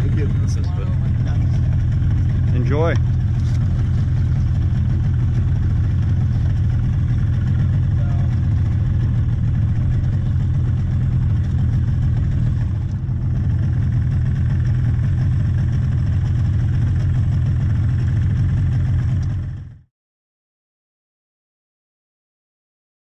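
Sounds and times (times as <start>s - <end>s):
outboard motor idling: 0.0s - 19.8s.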